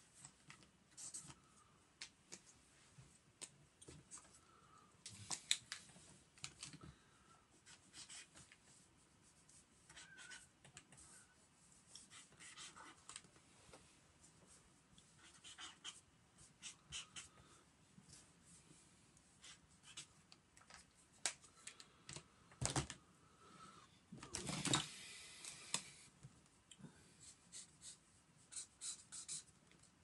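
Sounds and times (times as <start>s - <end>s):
marker pen scratching on paper: 7.6s - 8.5s, 9.3s - 11.3s, 11.9s - 13.1s, 15.1s - 17.4s, 19.4s - 20.2s, 27.2s - 29.5s.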